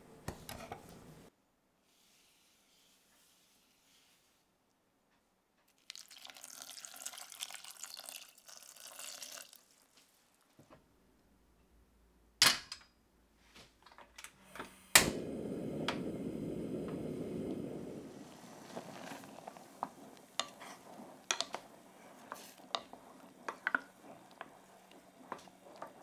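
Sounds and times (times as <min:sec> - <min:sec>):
water pouring into saucepan: 0:05.8 - 0:10.0, 0:17.8 - 0:26.0
gas burner clicking alight: 0:14.6 - 0:18.0
gas flame rushing: 0:14.9 - 0:26.0.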